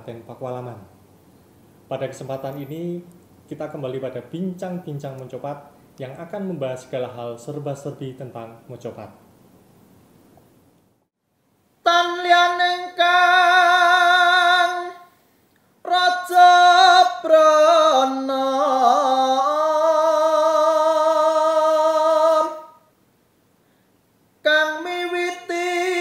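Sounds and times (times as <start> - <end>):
man singing unaccompanied: 0.0 - 1.0, 1.9 - 9.2, 11.8 - 15.2, 15.8 - 23.0, 24.4 - 26.0.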